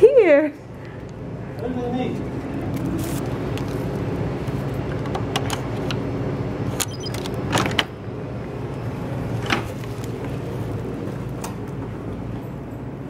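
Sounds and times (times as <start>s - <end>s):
steady low hum: 0.0s - 13.0s
key card clicks: 6.8s - 7.4s.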